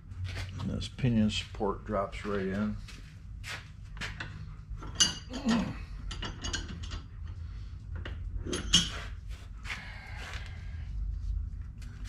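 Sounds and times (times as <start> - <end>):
metal clicks and knocks: 4.1 - 7.4
metal clank: 4.8 - 7.1.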